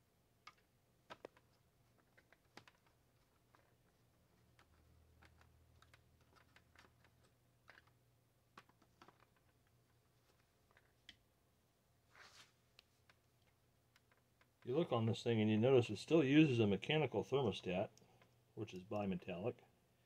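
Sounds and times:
small clicks and taps of plastic parts: 0.4s - 11.3s, 12.7s - 14.7s, 17.9s - 19.2s.

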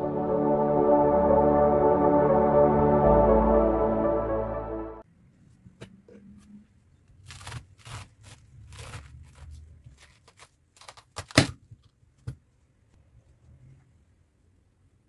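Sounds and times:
knife crunching through cabbage: 7.2s - 11.4s.

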